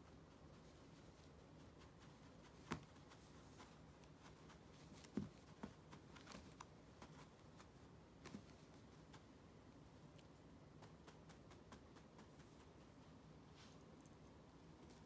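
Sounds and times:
soft thumps and rustles: 2.4 - 9.3.

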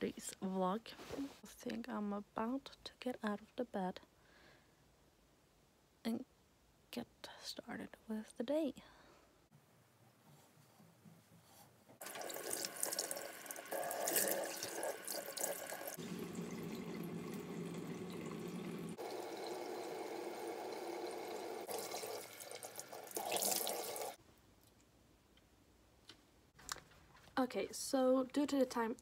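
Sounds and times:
face being washed: 12.0 - 24.2.

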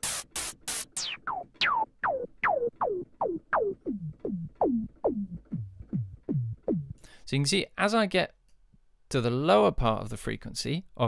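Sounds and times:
filtered synth noise notes: 0.8 - 7.0.

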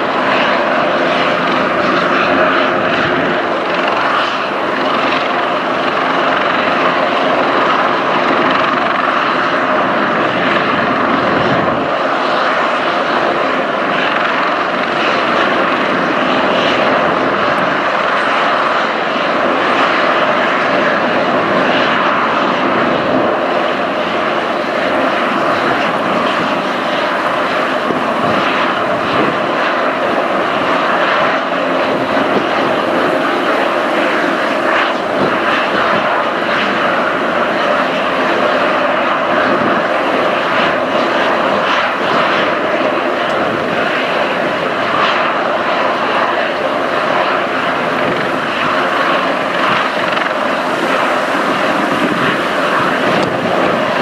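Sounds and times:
helicopter rotor noise: 0.0 - 54.0
helicopter turbine whine: 0.0 - 54.0.

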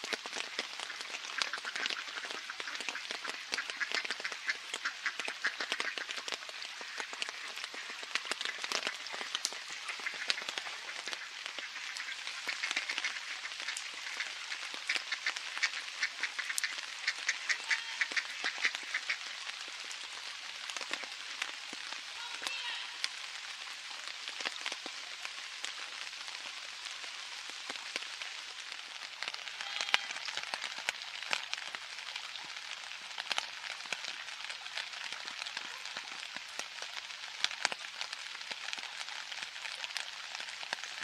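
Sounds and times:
rain pattering on water and pavement: 0.0 - 41.0
ducks quacking: 9.9 - 19.2.

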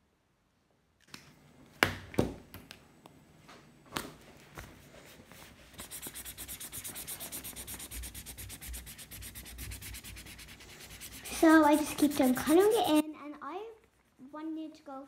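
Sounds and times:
felt-tip marker scribbling on paper: 5.8 - 13.0.

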